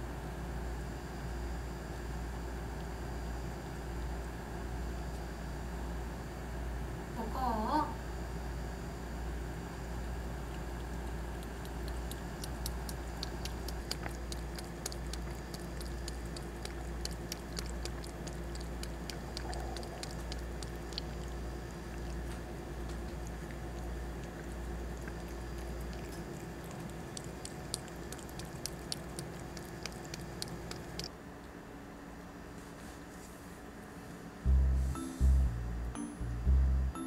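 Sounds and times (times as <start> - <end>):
fan and air conditioner hum: 0.0 - 37.0
cat licking and chewing food: 10.2 - 31.1.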